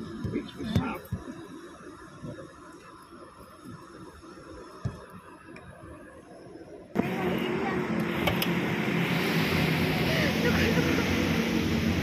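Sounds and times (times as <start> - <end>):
voices: 0.0 - 1.3, 7.0 - 11.9
road traffic: 6.9 - 12.0.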